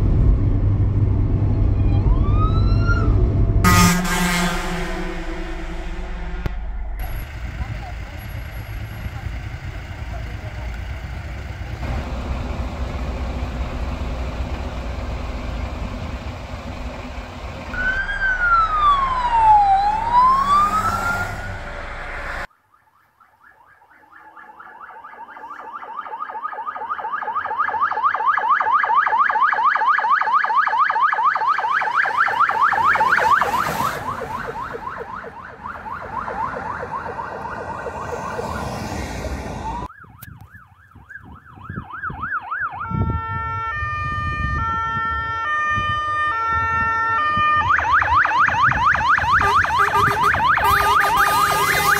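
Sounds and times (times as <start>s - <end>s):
steady rumble: 0.0s - 22.5s
slow wailing siren: 1.1s - 9.4s, 11.6s - 51.9s
fast yelping siren: 1.8s - 3.2s, 17.8s - 51.9s.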